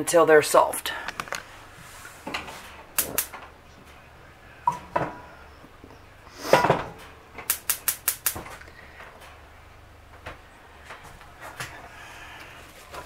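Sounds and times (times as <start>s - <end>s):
pans and dishes clattering: 6.5s - 7.0s.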